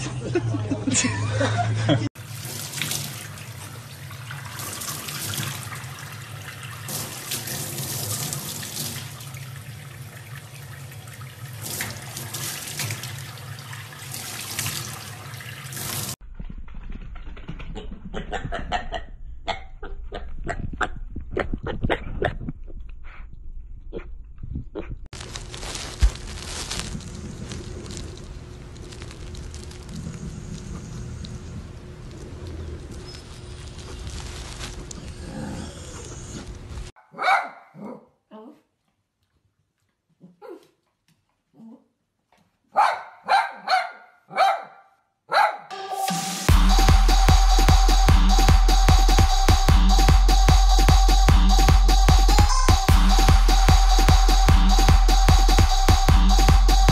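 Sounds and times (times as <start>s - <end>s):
small pig grunting: 35.0s - 36.6s
small dog barking: 37.0s - 38.2s, 40.4s - 40.7s, 42.7s - 45.7s.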